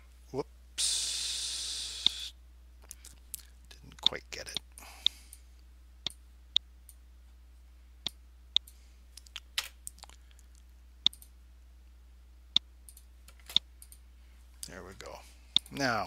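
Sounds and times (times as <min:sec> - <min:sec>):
computer mouse clicking: 0:11.0 - 0:11.3, 0:12.9 - 0:14.0.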